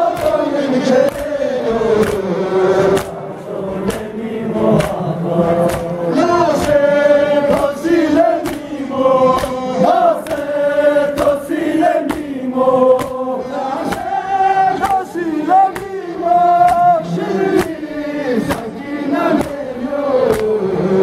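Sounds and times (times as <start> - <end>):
men chanting in unison: 0.0 - 21.0
chest-beating slaps: 0.1 - 1.4, 2.0 - 3.3, 3.9 - 4.1, 4.8 - 6.0, 6.6 - 6.9, 7.5 - 9.6, 10.2 - 14.2, 14.8 - 16.0, 16.6 - 17.0, 17.6 - 17.9, 18.5 - 18.8, 19.4 - 19.7, 20.3 - 20.6.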